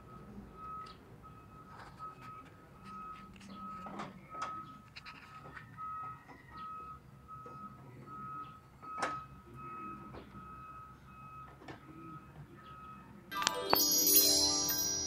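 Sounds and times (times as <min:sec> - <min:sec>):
reversing alarm beeping: 0:05.8 - 0:13.2.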